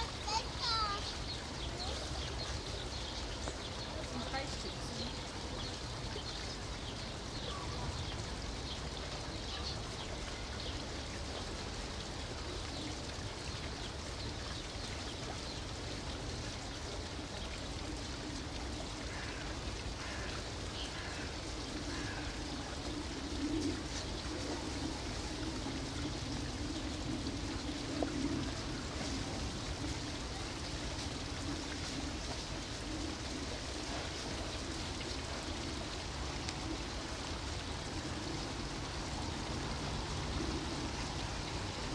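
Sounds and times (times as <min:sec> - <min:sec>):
low murmuring: 0:00.0 - 0:11.2
outdoor background noise: 0:00.0 - 0:41.9.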